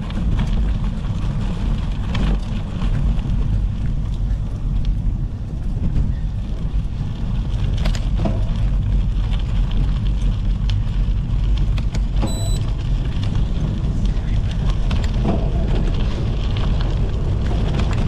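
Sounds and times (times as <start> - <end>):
bike clicks and rattles: 0.0 - 18.0
tyres on loose stones: 0.0 - 18.0
wind on microphone: 0.0 - 18.0
short high beep: 12.2 - 12.6.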